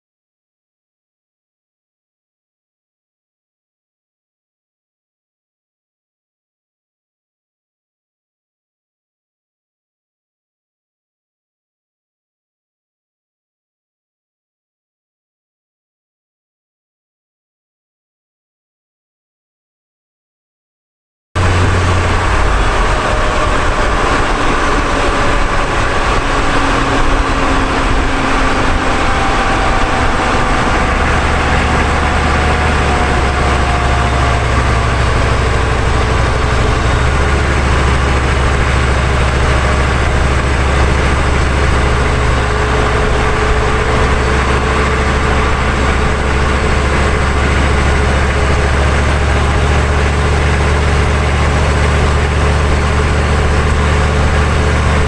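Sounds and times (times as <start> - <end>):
deep low drone: 21.4 - 55.0
tyres rushing on asphalt: 21.4 - 55.0.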